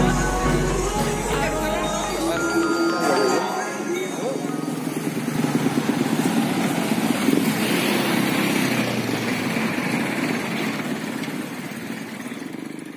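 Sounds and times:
motorbikes riding past: 4.4 - 12.9.

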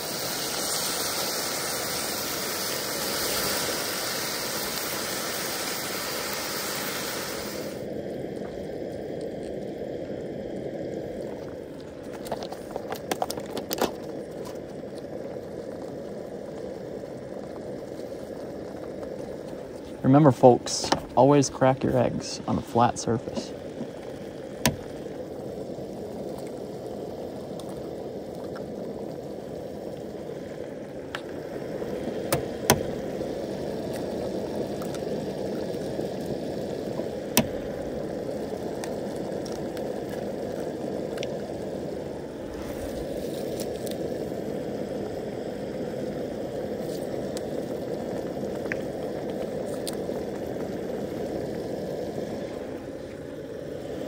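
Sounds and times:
sauce bubbling in a skillet: 0.0 - 54.0.

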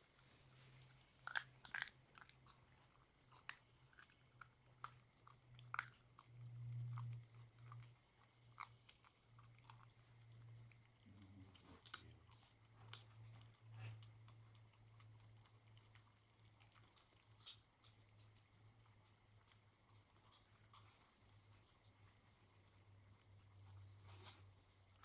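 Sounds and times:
puppies chewing bones: 0.0 - 25.0
bone cracking and crunching: 1.2 - 2.5.

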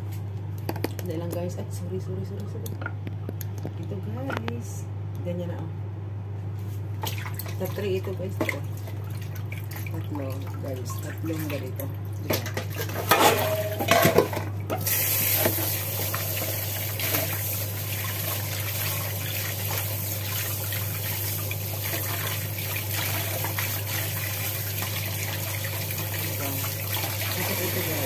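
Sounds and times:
kitchen tap running: 7.0 - 28.0.

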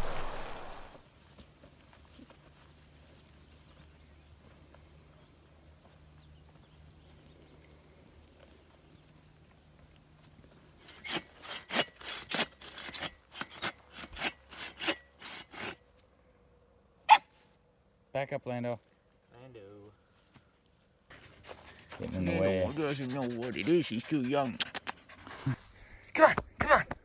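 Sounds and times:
hand saw cutting log: 10.8 - 15.8.

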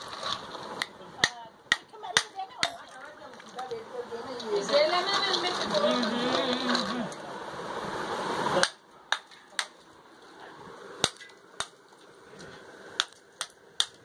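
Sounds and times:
ice chunks clinking: 0.0 - 1.0.

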